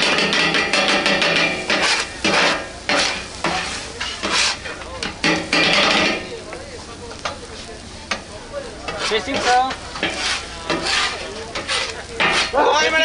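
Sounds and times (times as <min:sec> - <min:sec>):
metal spatulas scraping griddle: 0:00.0 - 0:06.2, 0:08.8 - 0:13.0
food sizzling: 0:00.0 - 0:13.0.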